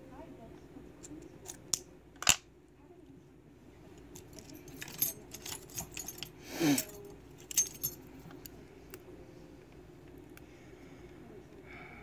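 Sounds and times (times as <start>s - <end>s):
small metal lock parts clicking: 4.1s - 8.0s.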